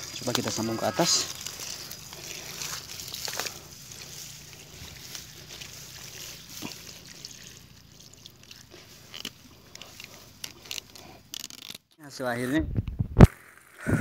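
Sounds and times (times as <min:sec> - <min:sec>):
water trickling: 0:00.0 - 0:10.8.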